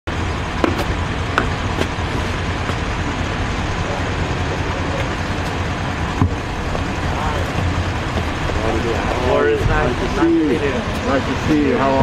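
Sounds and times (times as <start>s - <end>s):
engine running low rumble: 0.1s - 12.0s
boots stepping on paving: 0.6s - 2.9s, 4.9s - 8.8s.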